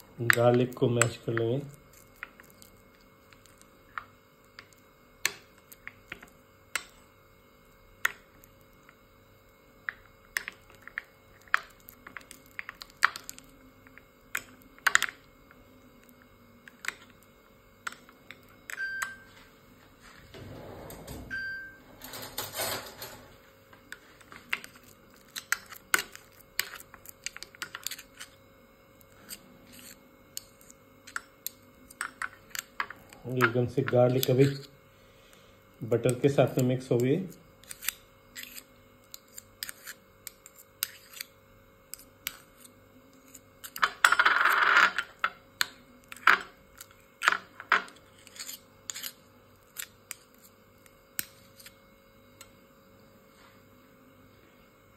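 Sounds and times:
metal spoon scraping glass bowl: 34.1s - 34.7s, 37.6s - 41.3s, 47.8s - 50.5s.

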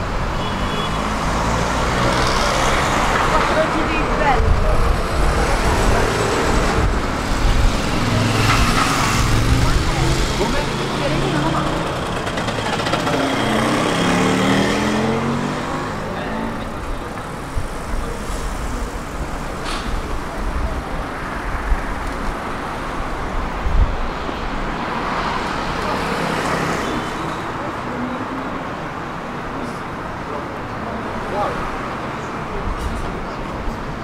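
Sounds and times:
vehicles passing close by: 0.0s - 34.0s.

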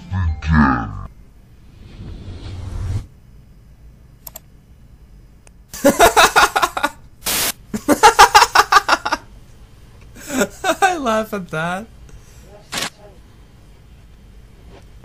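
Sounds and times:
static-like hiss: 4.8s - 15.0s
man laughing loudly: 5.8s - 7.0s, 7.7s - 9.3s, 10.2s - 11.0s.

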